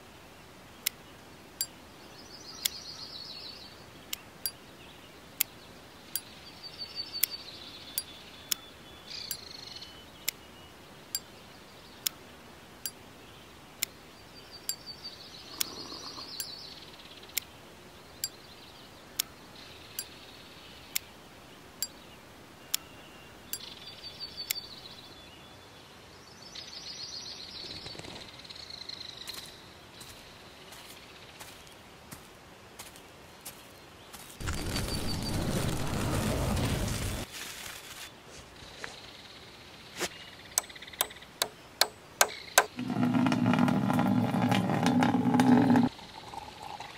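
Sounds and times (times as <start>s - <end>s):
birds chirping: 0.8s - 31.8s, 32.9s - 37.3s, 38.6s - 46.9s
rustling noise: 34.2s - 39.1s.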